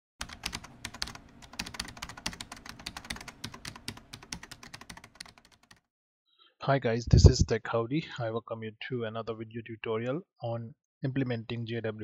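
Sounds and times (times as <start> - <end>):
computer keyboard typing: 0.2 - 5.9.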